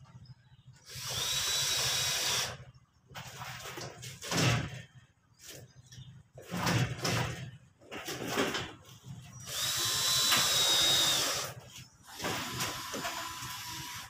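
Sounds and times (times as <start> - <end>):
knocks and scrapes: 3.1 - 9.4
cordless drill whine: 9.4 - 14.0.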